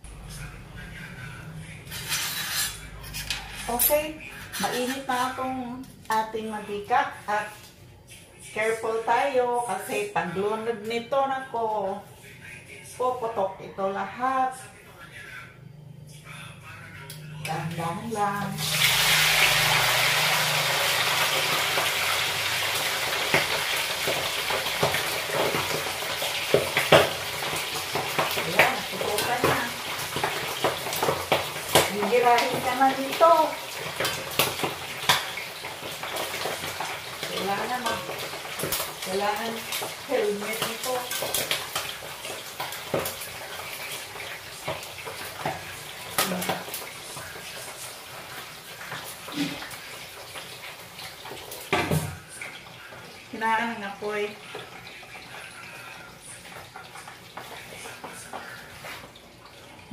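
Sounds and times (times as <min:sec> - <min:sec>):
meat deep-frying in oil: 0:17.6 - 0:59.9.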